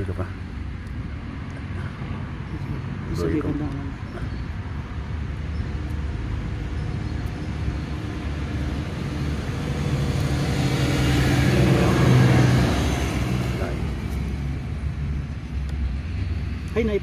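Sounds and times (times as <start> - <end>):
road traffic rumbling: 0.0 - 17.0
vehicle engine passing by: 4.8 - 15.3.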